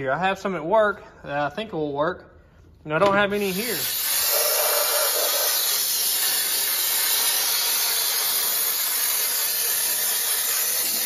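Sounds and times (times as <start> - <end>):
compressed air blow gun hissing: 3.4 - 11.0.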